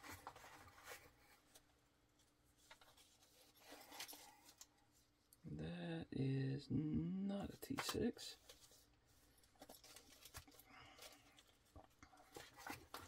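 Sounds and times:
man speaking: 0:05.4 - 0:08.4
plastic bags rustling: 0:08.6 - 0:13.0.

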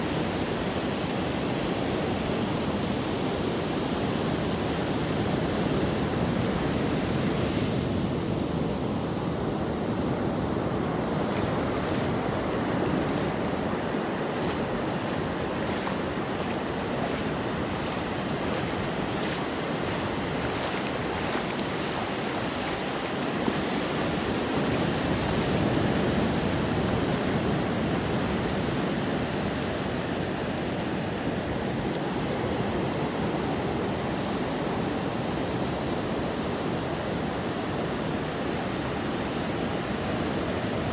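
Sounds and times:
ocean waves breaking: 0:04.8 - 0:29.5
foam washing over sand: 0:10.4 - 0:26.5.

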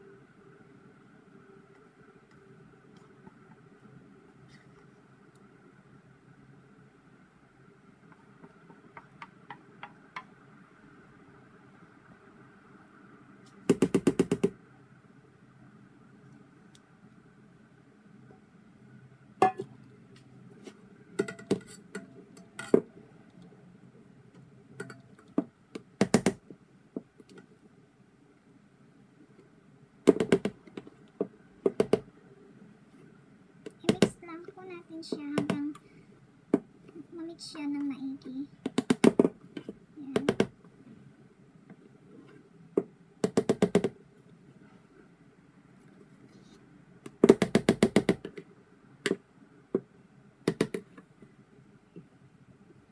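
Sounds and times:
spatula tapping a metal bowl: 0:19.4 - 0:19.7.

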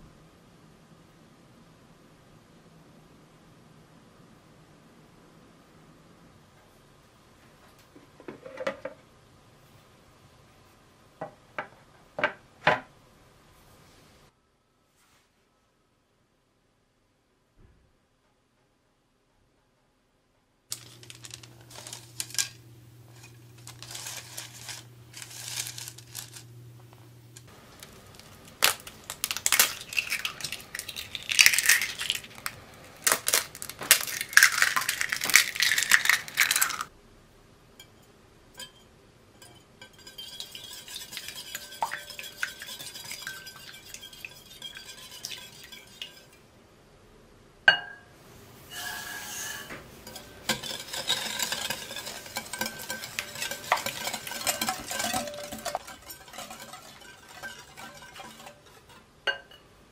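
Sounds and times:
eggs cracking: 0:20.7 - 0:36.9, 0:50.1 - 0:59.0
rustling and handling: 0:20.7 - 0:36.9, 0:48.6 - 0:59.1
whisk clicking against glass bowl: 0:39.4 - 0:46.4, 0:50.1 - 0:59.0.

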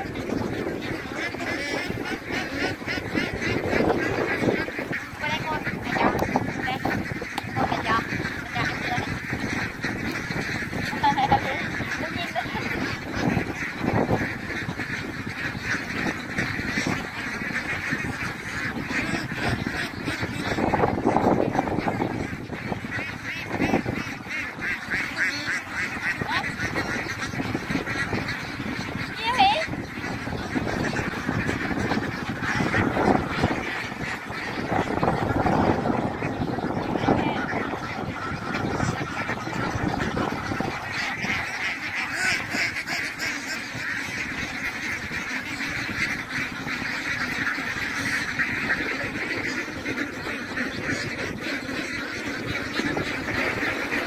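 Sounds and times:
ducks quacking: 0:00.0 - 0:54.0.

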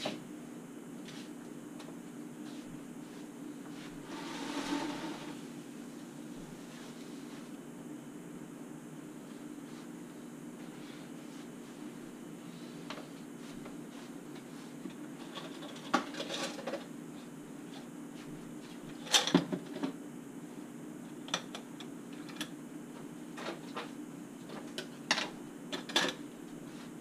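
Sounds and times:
low steady hum: 0:00.1 - 0:15.1.

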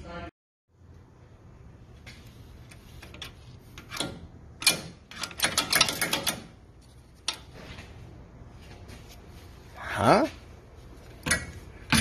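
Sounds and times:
metal suspension parts clicking: 0:03.0 - 0:07.6.

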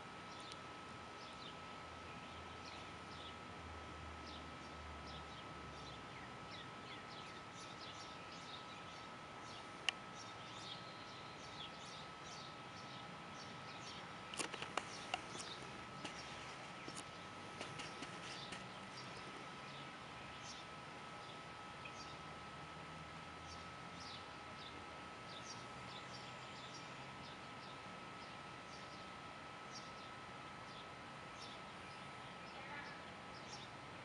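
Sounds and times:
sharp clicks: 0:14.3 - 0:15.5.

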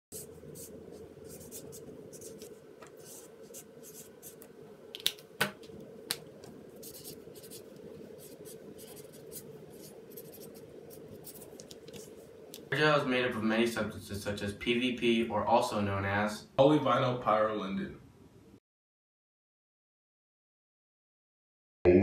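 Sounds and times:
marker scratching on paper: 0:00.1 - 0:04.5, 0:06.8 - 0:12.2
steady hum: 0:00.1 - 0:18.6.

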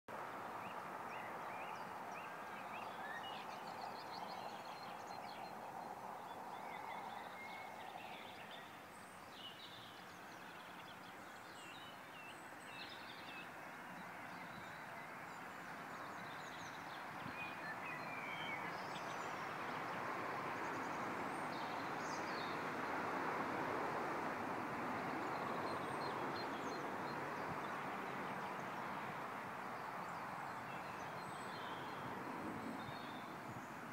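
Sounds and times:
songbirds chirping and singing: 0:00.6 - 0:20.0.

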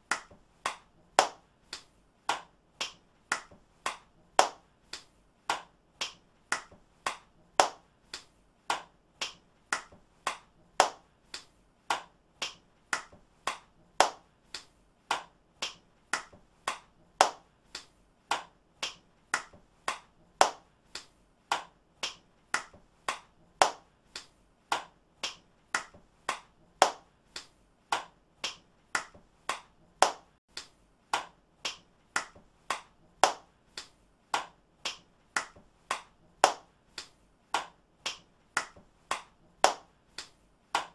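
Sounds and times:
hand claps: 0:00.0 - 0:40.9.

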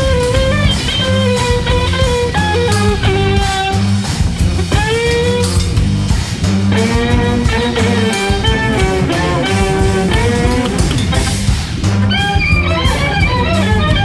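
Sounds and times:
bass and percussion: 0:00.0 - 0:14.0.

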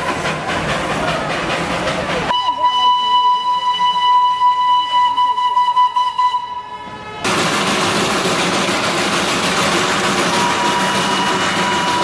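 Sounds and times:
steam locomotive whistle: 0:02.3 - 0:07.4, 0:10.1 - 0:12.0
loud steady rushing noise: 0:07.0 - 0:12.0.

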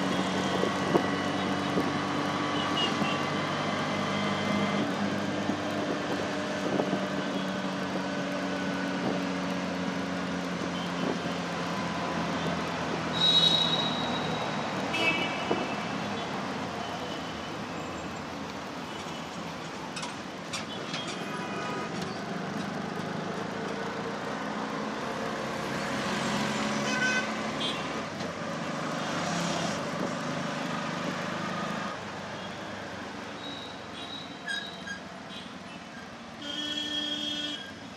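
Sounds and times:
traffic noise: 0:00.0 - 0:37.9
vehicle horns tooting: 0:13.1 - 0:15.7, 0:26.8 - 0:27.9, 0:33.4 - 0:37.8
auto-rickshaw engine running: 0:20.1 - 0:26.8.

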